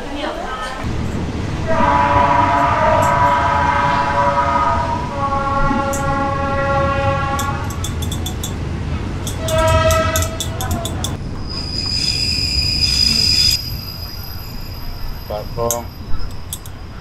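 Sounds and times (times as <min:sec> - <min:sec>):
train rumble: 0:00.0 - 0:17.0
train horn chord: 0:01.5 - 0:08.0, 0:09.3 - 0:10.7.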